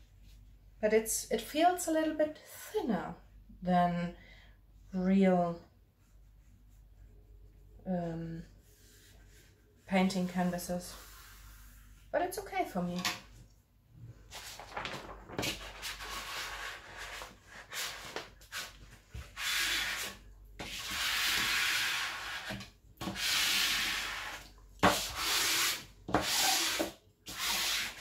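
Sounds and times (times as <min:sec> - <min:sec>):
ruler swishing over paper: 0:08.4 - 0:12.1, 0:15.4 - 0:28.0.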